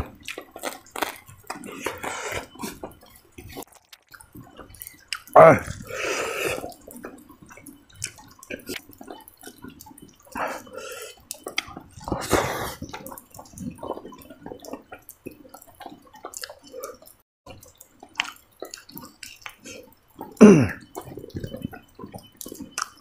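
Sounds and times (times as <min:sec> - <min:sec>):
person chewing rice: 0:00.0 - 0:23.0
wet lip-smacking: 0:00.2 - 0:17.2, 0:18.1 - 0:23.0
breathy crunchy bursts: 0:01.0 - 0:02.8, 0:05.3 - 0:06.8, 0:12.0 - 0:12.9.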